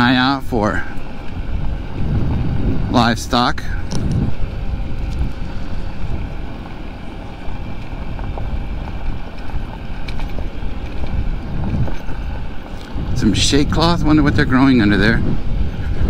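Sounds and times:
scooter engine running: 0.0 - 16.0
tyres on loose gravel: 0.0 - 16.0
wind rumble on microphone: 0.0 - 16.0.

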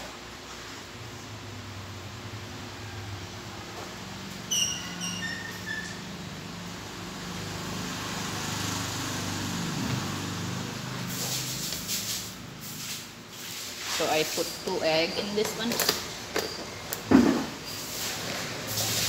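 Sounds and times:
low engine hum: 6.3 - 12.6
hiss: 17.7 - 19.0.

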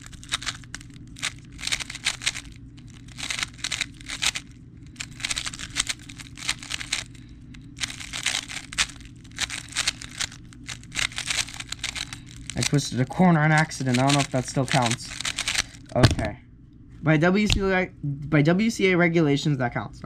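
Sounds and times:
speed cube layers clacking: 0.0 - 7.1, 7.8 - 15.9.

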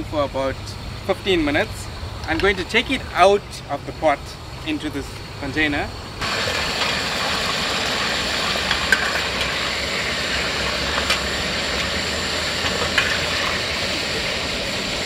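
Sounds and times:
hot oil sizzling: 6.2 - 15.0.

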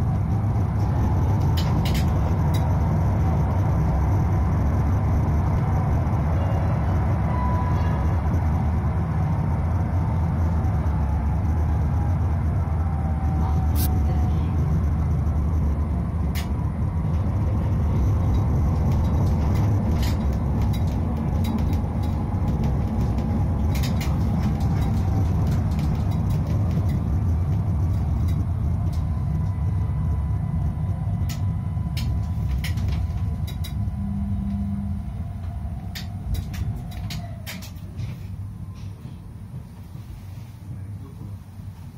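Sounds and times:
tram running gear rumble: 0.0 - 41.9
sharp clicks and rattles: 0.7 - 3.8, 16.2 - 29.6, 30.6 - 34.7, 35.4 - 38.2.

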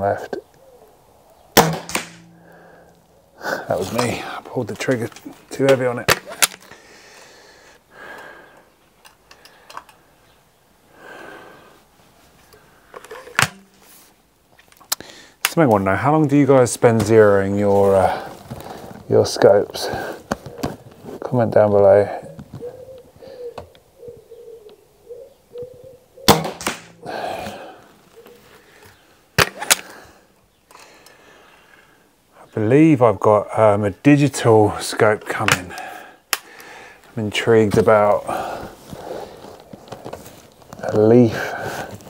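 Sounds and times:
air rifle crack: 1.5 - 3.1, 5.7 - 7.4, 12.9 - 13.9, 26.2 - 27.9, 29.4 - 30.0, 35.4 - 36.9
sharp knock: 1.6 - 2.4, 26.3 - 27.0
soft breaths: 2.4 - 4.6, 6.6 - 14.2, 15.0 - 15.4, 17.8 - 19.1, 19.7 - 21.2, 22.0 - 23.6, 27.0 - 32.5, 35.7 - 37.2, 38.0 - 42.0
rifle handling rustle: 3.7 - 6.9, 9.0 - 10.1, 11.8 - 15.8, 16.8 - 21.3, 26.3 - 30.0, 35.4 - 42.0
air rifle handling clicks: 5.0 - 6.8, 9.0 - 10.0, 12.5 - 13.7.

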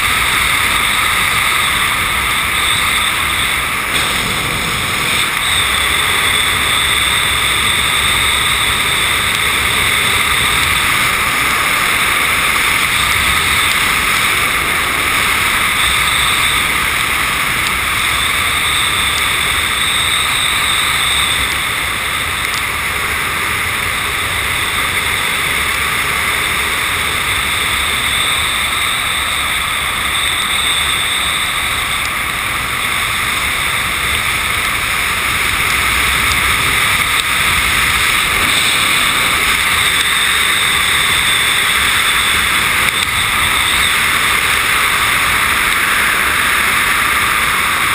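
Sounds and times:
airflow rushing over microphone: 0.0 - 18.2, 31.3 - 47.9
helicopter rotor noise: 0.0 - 47.9.

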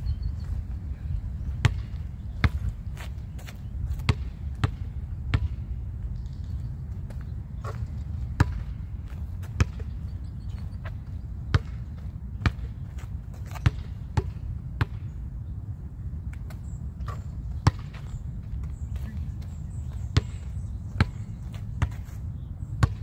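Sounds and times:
steady low rumble: 0.0 - 23.0
basketball bouncing on asphalt: 1.4 - 15.2, 16.2 - 23.0.

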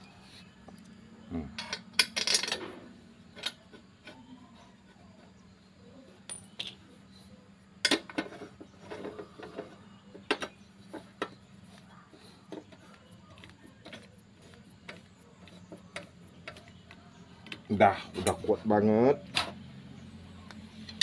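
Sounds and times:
metal clinks of bolt and tools: 6.2 - 6.8.

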